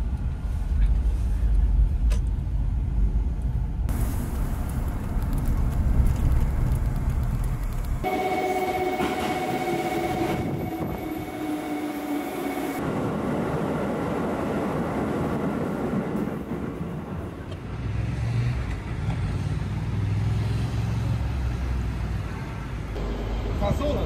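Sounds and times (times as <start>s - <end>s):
road traffic engine rumble: 0.0s - 8.6s
electric train motor whine: 8.0s - 12.8s.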